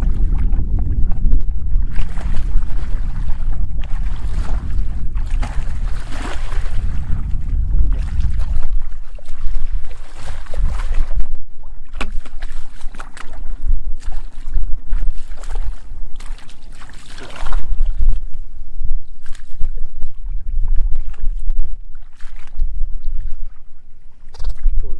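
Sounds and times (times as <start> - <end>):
hands groping in water: 0.0 - 18.5
wind rumble on microphone: 0.0 - 24.9
boots splashing through muddy water: 1.9 - 7.0, 7.9 - 11.2, 11.8 - 18.2, 22.0 - 22.7.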